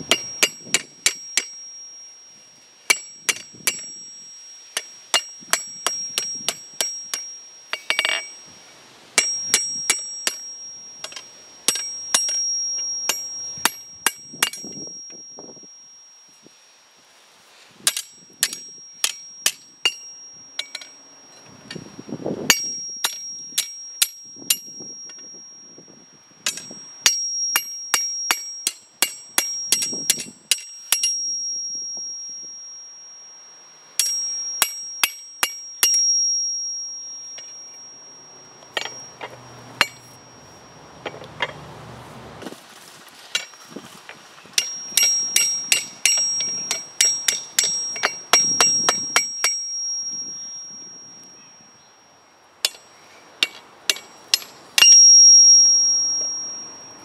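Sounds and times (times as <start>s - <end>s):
hammer striking steel on an anvil: 0.0s - 2.1s, 2.9s - 8.4s, 9.2s - 15.4s, 17.9s - 21.8s, 22.5s - 25.6s, 26.4s - 32.8s, 34.0s - 40.3s, 44.6s - 51.4s, 52.6s - 56.7s.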